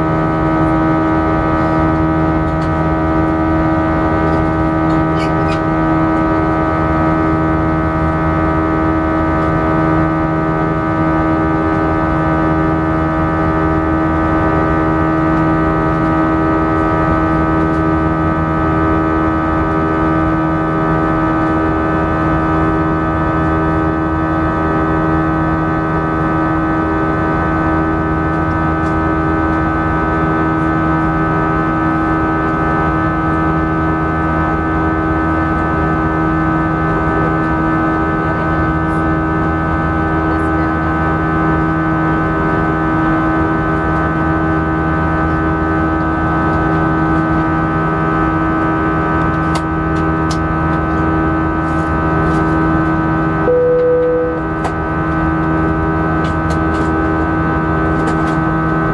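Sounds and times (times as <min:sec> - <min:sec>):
jet engine drone in cabin: 0:00.0 - 0:58.9
single cabin chime tone: 0:53.5 - 0:54.6.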